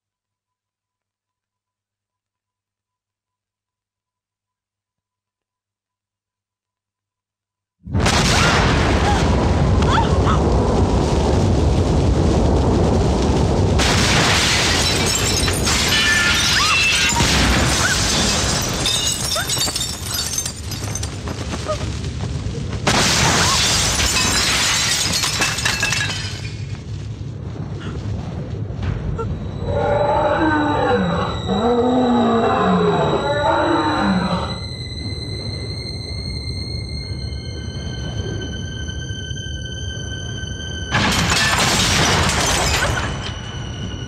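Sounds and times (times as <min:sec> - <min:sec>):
booms and crashes: 0:07.8 - 0:29.7, 0:40.9 - 0:44.0
loud rushing wind: 0:09.3 - 0:14.2.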